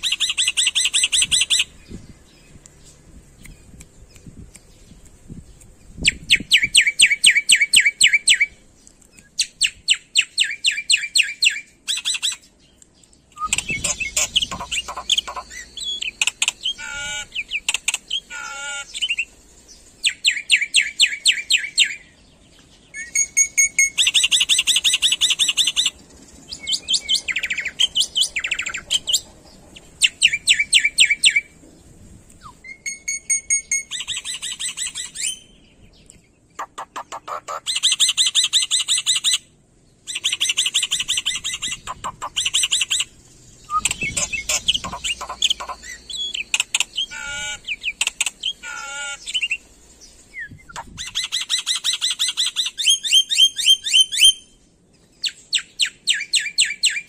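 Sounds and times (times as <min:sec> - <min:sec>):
starling chattering song: 0:00.0 - 0:02.2, 0:13.4 - 0:22.1, 0:22.9 - 0:35.6, 0:36.5 - 0:39.5, 0:40.1 - 0:54.4.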